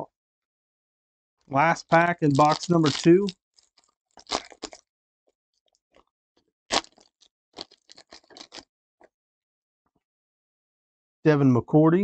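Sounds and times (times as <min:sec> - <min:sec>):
foil wrapper crinkling: 0:01.9 - 0:04.8, 0:06.7 - 0:08.6.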